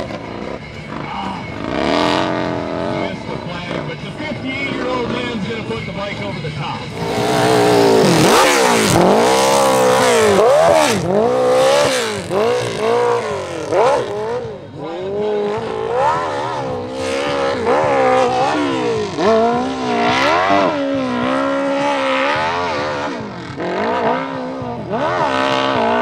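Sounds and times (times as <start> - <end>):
motorcycle engine revving hard: 0.0 - 5.6, 6.9 - 26.0.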